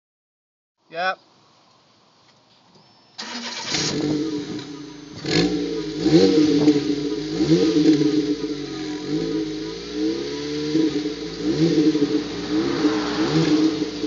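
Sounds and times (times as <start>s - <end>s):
car engine starting and idling: 2.7s - 14.0s
car engine revving: 3.2s - 14.0s.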